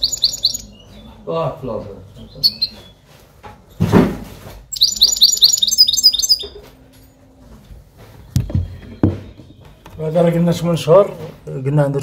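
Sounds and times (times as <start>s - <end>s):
finch singing: 0.0s - 1.5s, 2.1s - 3.0s, 4.7s - 6.6s.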